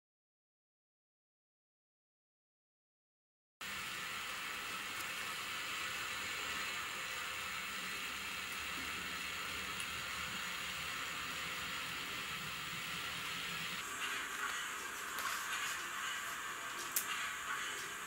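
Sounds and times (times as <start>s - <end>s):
steam hissing: 3.6s - 18.0s.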